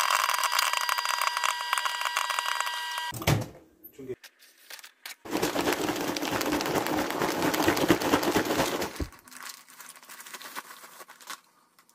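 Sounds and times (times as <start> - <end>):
paper bag crinkling: 4.5 - 11.9.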